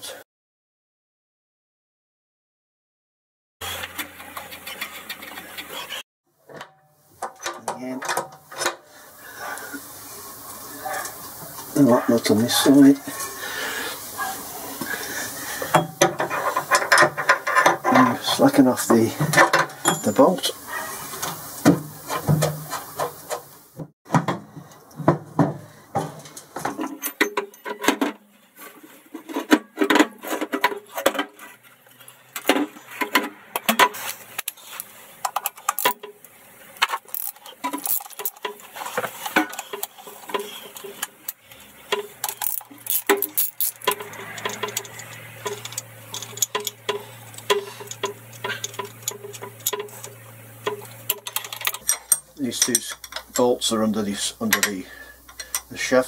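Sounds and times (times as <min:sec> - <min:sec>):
metallic clinks of hand tools: 0:19.8 - 0:20.4, 0:50.7 - 0:53.5.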